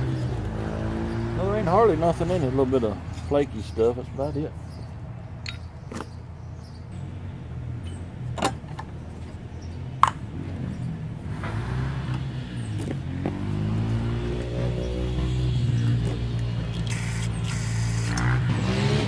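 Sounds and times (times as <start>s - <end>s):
low engine hum: 0.0s - 19.0s
metallic clicks of parts handled: 5.4s - 6.1s.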